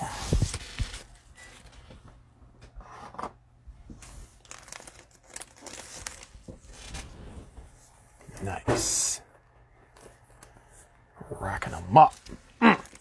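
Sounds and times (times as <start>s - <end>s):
card packaging rustling and crinkling: 0.0s - 1.9s, 3.9s - 7.3s, 11.4s - 13.0s.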